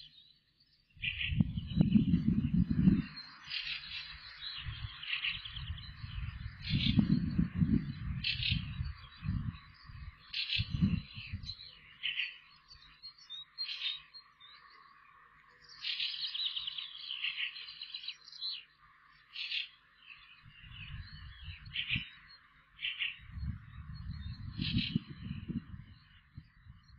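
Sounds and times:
wind gusts on microphone: 1.0 - 11.7, 20.4 - 22.4, 23.2 - 26.9
high chirping calls: 1.0 - 26.9.

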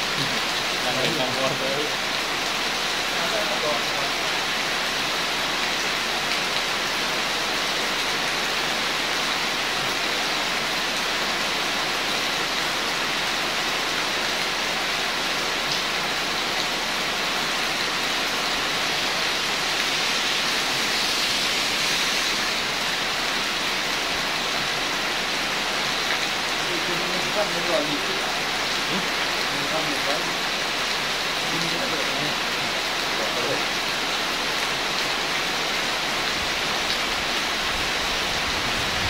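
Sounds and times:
steady rain falling: 0.0 - 39.0.

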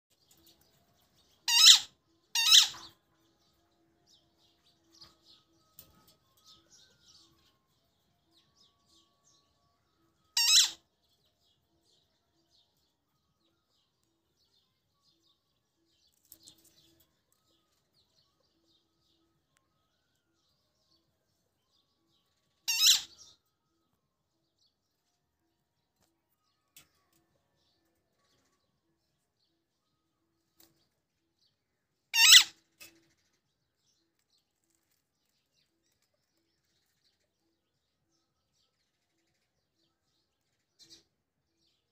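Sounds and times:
soft bird chirps: 0.1 - 41.9
parakeet shrill screeches: 1.5 - 2.9, 10.4 - 10.8, 22.7 - 23.2, 32.1 - 32.6.

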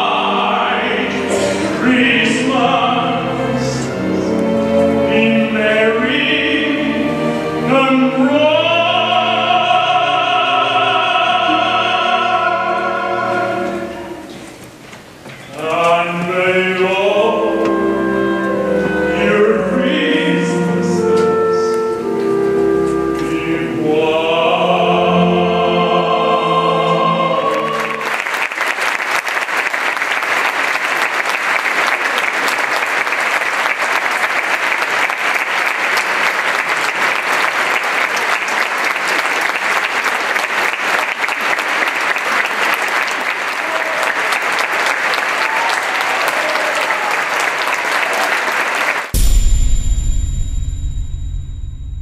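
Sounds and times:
tenor choir and orchestra chord: 0.0 - 14.4, 16.7 - 28.1
audience applauding: 27.5 - 49.2
electronic logo sting: 49.2 - 52.0.

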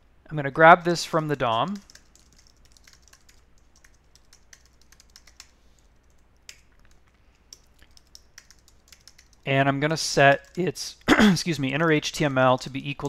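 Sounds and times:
computer keyboard keystrokes: 1.5 - 9.5.

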